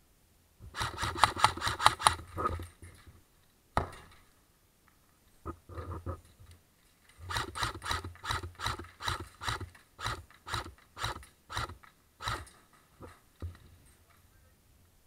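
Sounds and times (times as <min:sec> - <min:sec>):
airsoft rifle shots: 0:00.7 - 0:02.3, 0:07.3 - 0:12.5.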